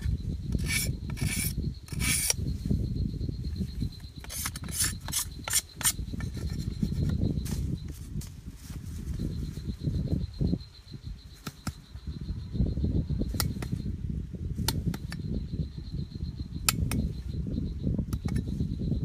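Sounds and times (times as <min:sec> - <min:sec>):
cleaver scraping bamboo stick: 0:00.6 - 0:02.4, 0:04.2 - 0:07.1
cleaver clicking on bamboo: 0:13.3 - 0:13.8, 0:14.6 - 0:15.2, 0:16.6 - 0:17.1.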